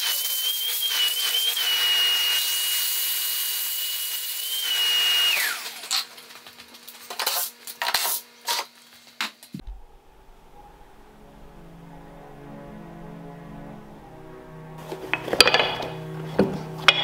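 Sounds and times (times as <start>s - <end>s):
workshop vacuum hissing and whining: 0.0s - 6.1s
music: 10.3s - 17.0s.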